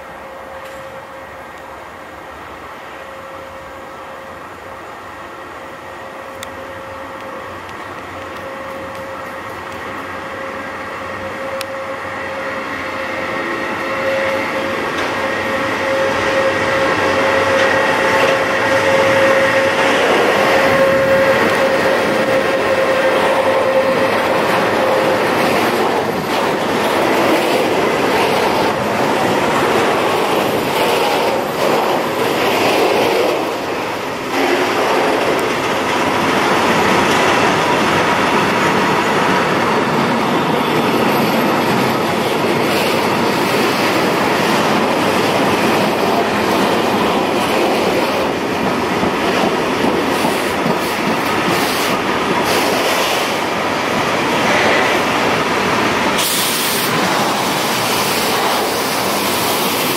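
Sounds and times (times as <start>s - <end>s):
electric locomotive whine: 0.0s - 59.9s
train wheels clattering over rail joints: 41.3s - 55.4s.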